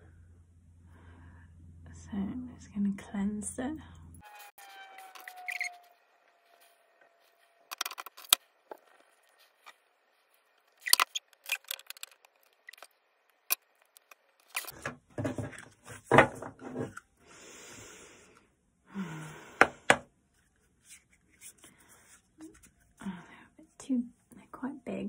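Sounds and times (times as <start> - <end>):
cards rustling and shuffling: 6.4 - 17.0.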